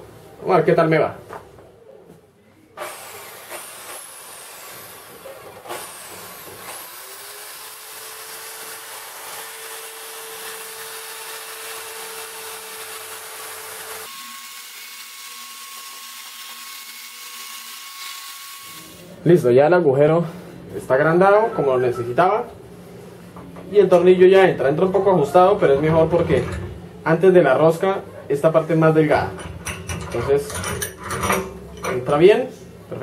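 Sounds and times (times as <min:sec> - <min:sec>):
drill grinding metal: 0:02.8 - 0:19.0.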